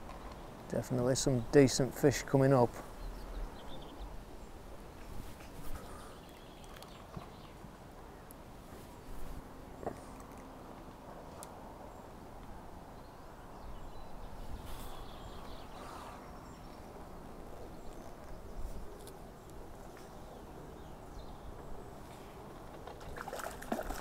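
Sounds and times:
faint rustles: 4.9s - 7.4s, 14.4s - 16.2s.

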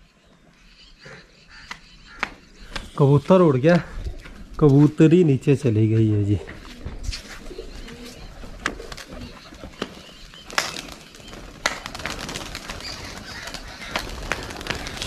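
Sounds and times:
pigeons cooing: 6.3s - 15.0s
wings flapping: 6.7s - 15.0s.

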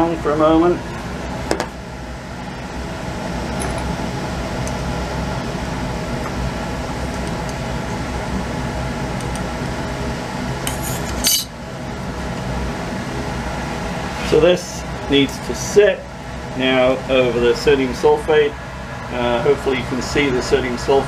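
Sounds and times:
fan-like hum: 0.0s - 21.0s
glass flask clinking: 11.2s - 11.5s.

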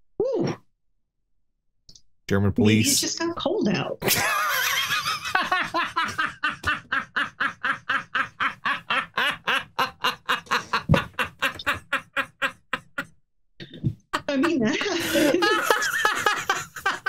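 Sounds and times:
man laughing hard: 4.1s - 13.2s, 14.2s - 17.0s.

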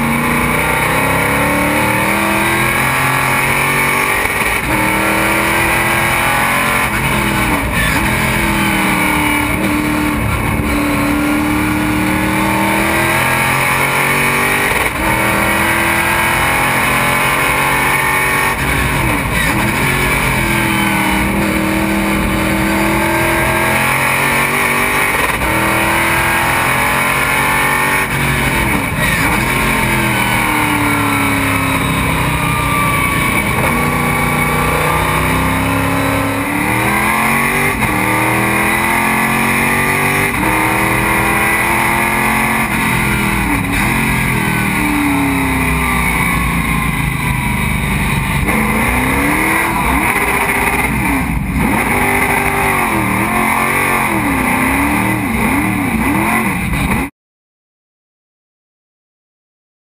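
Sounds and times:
race car engine revving: 0.0s - 57.1s.

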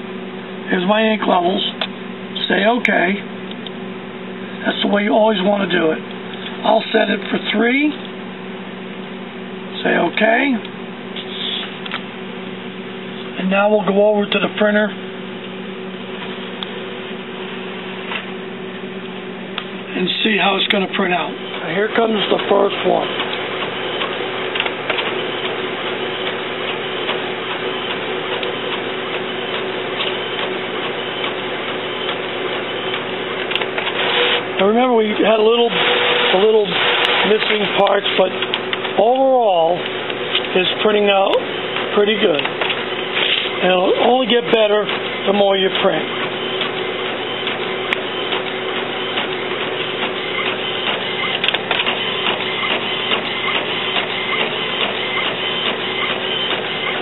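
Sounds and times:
inkjet printer printing: 20.0s - 57.0s
light ticking of paper feed: 20.1s - 57.0s.

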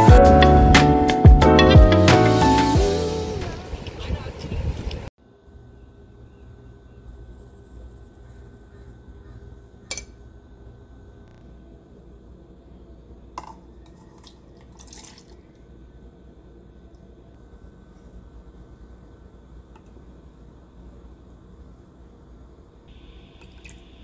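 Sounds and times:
low steady hum: 5.2s - 24.0s
milk pouring into a bowl: 13.8s - 15.6s.

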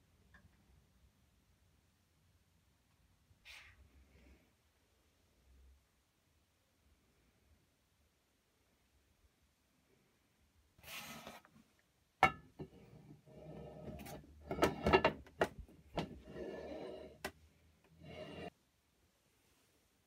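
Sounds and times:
steel scraping on metal: 16.2s - 17.2s, 18.0s - 18.5s.

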